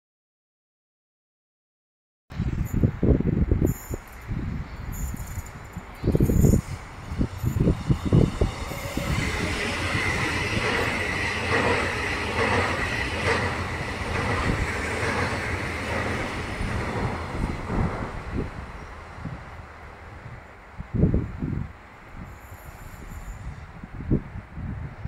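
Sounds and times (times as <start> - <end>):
train wheels rushing on rails: 4.9 - 20.4
wheels clacking over rail joints: 6.4 - 18.6.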